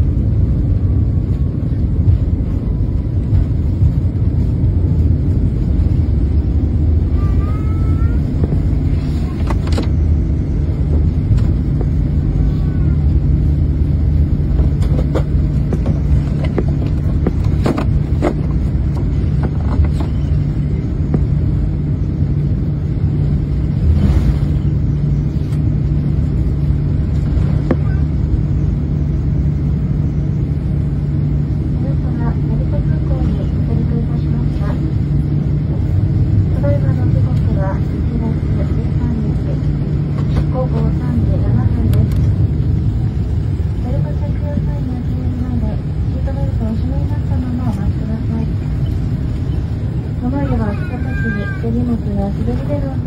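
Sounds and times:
airliner cabin rumble: 0.0s - 53.0s
steady low hum: 0.0s - 53.0s.

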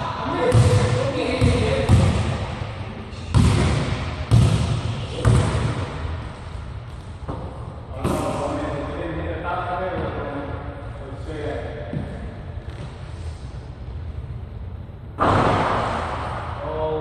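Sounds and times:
basketball bouncing on hardwood floor: 0.5s - 2.3s, 3.3s - 5.8s.

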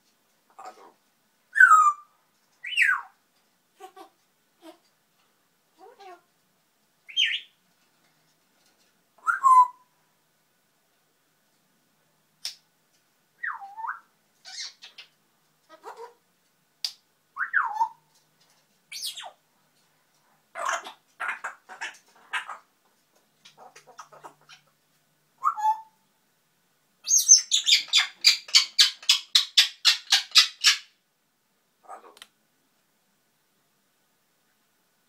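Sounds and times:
parrot chatter calls: 0.5s - 2.0s, 3.8s - 4.9s, 13.4s - 16.2s, 20.5s - 22.7s, 23.4s - 24.8s, 27.0s - 31.0s, 31.8s - 32.2s.

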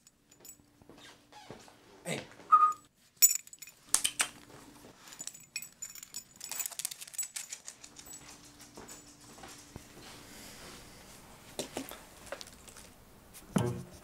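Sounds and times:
light metallic clinks: 0.0s - 0.7s, 3.2s - 4.4s, 5.0s - 9.8s.

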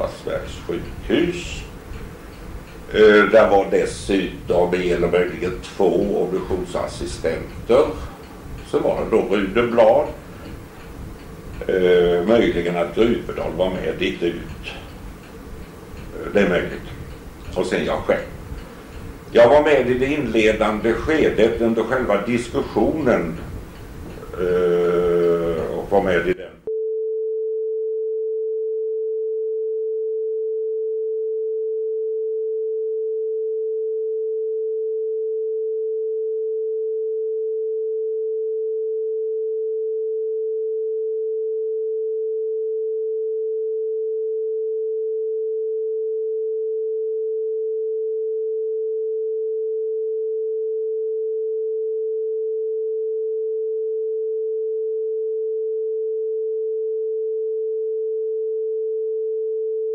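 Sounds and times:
steady electronic tone: 0.0s - 26.7s.

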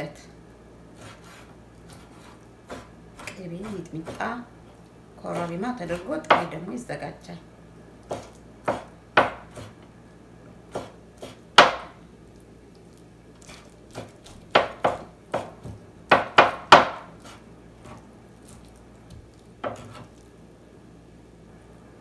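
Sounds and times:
knife chopping on wooden board: 1.0s - 4.3s, 8.1s - 9.8s, 10.7s - 12.0s, 13.4s - 18.0s, 19.1s - 20.1s.

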